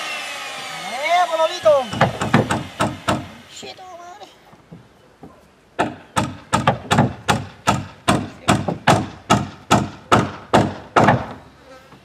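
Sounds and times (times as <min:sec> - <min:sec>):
hammering on wooden hull: 0:01.8 - 0:03.4, 0:05.8 - 0:11.4.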